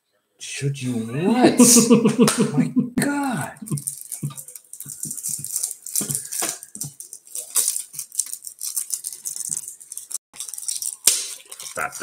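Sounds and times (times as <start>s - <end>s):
small hard objects rattling: 3.7s - 12.0s.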